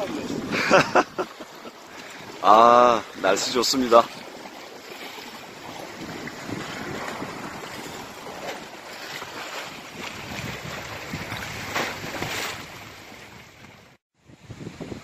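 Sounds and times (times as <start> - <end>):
wind noise on microphone: 0.0 - 1.3, 5.6 - 15.0
sea waves washing: 0.0 - 14.0.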